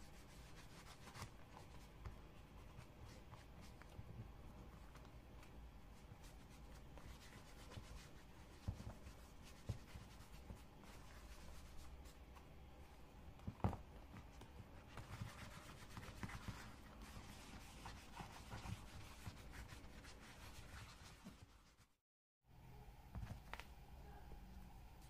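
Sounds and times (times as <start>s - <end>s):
cloth rubbing leather wallet: 14.8s - 21.9s.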